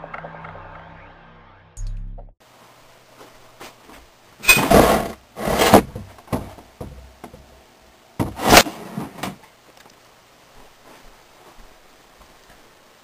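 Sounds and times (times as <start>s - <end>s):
rattling scraping knocks: 4.5s - 7.5s.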